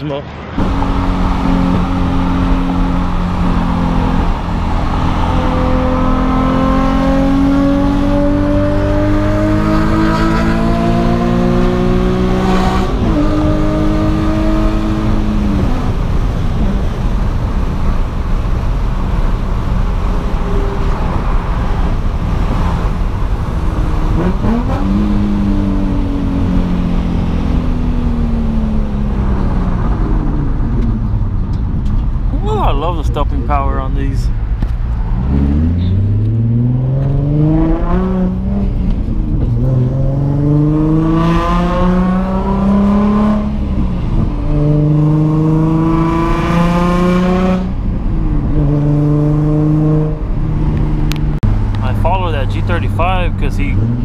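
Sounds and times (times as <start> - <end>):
car engine accelerating: 0.0 - 54.0
road rumble: 0.0 - 54.0.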